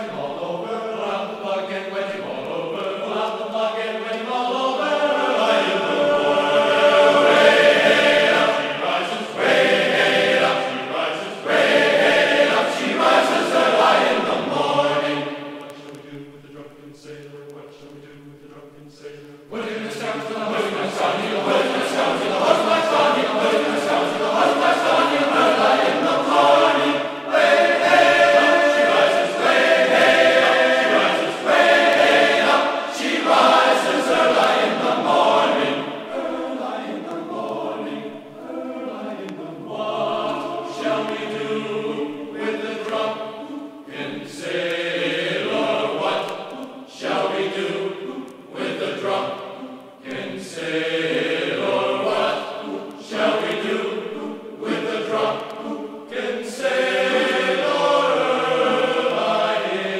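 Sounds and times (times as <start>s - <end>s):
choir singing held notes: 0.0s - 59.9s.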